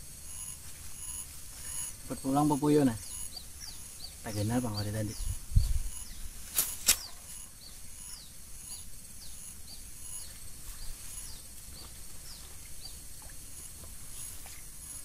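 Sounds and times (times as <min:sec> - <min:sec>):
small birds chirping: 0:00.0 - 0:15.0
sharp clicks: 0:06.0 - 0:07.5.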